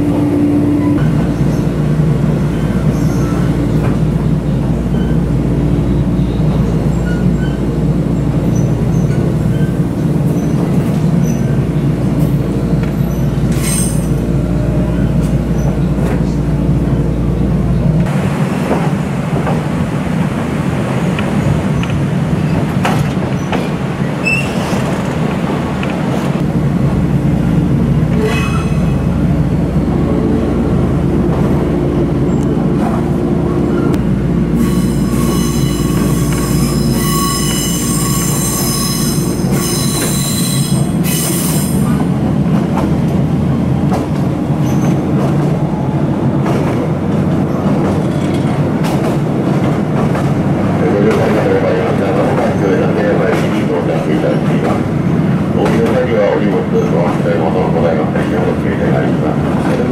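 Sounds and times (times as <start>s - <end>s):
train motor and wheel rumble: 0.0s - 59.9s
ringing wheel squeal: 34.6s - 41.7s.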